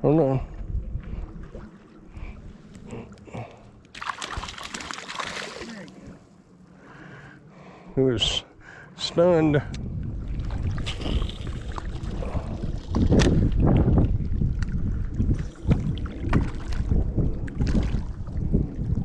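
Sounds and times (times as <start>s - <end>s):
wind buffeting microphone: 0.0s - 3.6s, 9.2s - 19.0s
small waves lapping: 1.0s - 7.4s.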